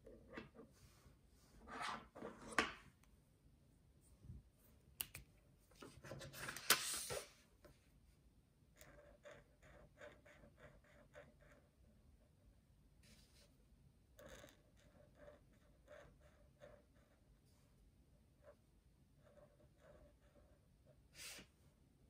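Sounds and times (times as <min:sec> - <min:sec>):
pen scratching on paper: 0:08.8 - 0:11.7, 0:14.2 - 0:17.2.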